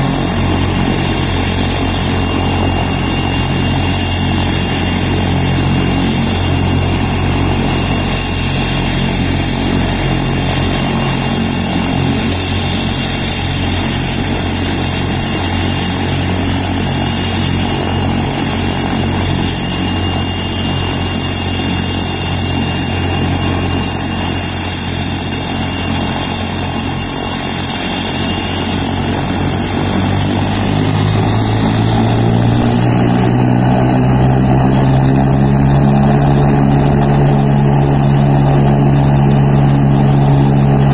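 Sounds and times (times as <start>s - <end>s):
helicopter turbine engines idling: 0.0s - 40.9s.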